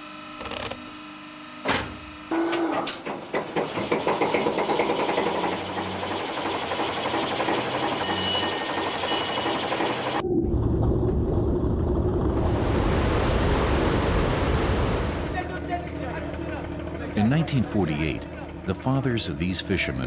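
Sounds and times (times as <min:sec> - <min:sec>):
boat engine starting and running: 0:02.6 - 0:20.0
deep rumble of boat under way: 0:10.2 - 0:19.4.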